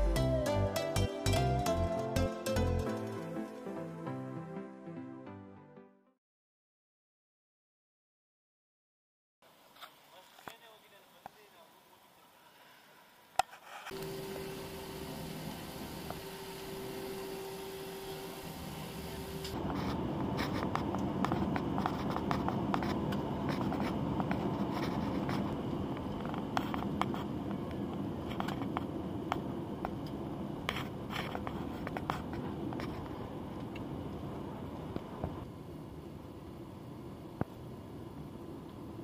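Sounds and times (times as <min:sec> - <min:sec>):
cabin hum with faint tone: 0:09.6 - 0:39.0
jet engines and wheels rumbling: 0:13.9 - 0:39.0.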